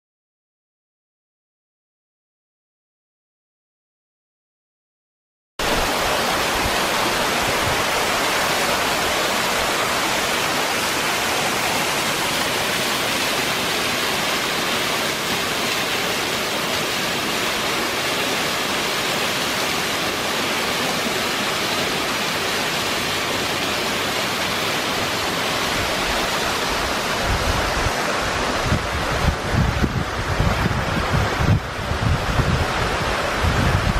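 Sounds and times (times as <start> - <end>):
wind gusts buffeting microphone: 5.6 - 15.5, 25.0 - 33.9
waterfall crashing down: 5.6 - 33.9.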